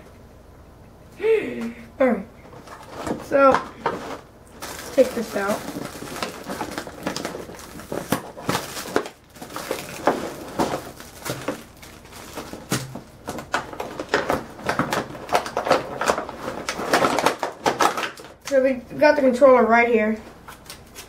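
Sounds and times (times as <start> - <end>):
plastic tray crinkling: 2.5 - 18.5
clicks and rustles: 2.5 - 18.6.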